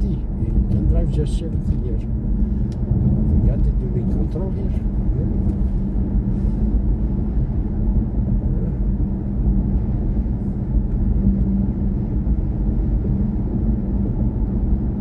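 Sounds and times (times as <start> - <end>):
faint steady hum: 0.0 - 15.0
road and tyre rumble: 0.0 - 15.0.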